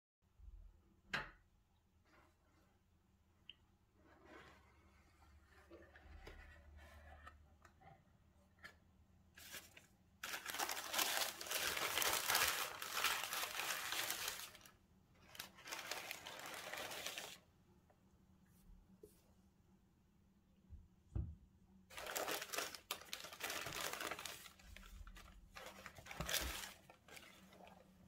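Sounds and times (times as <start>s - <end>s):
tissue paper rustling: 9.4s - 17.4s, 21.9s - 28.0s.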